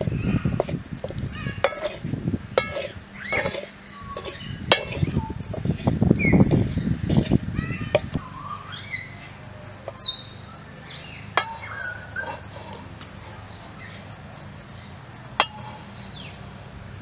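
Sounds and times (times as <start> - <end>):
birds chirping: 0.0 - 1.9, 2.8 - 16.8
wooden stick knocking on metal pan: 1.6 - 2.0, 2.6 - 5.7, 15.4 - 15.7.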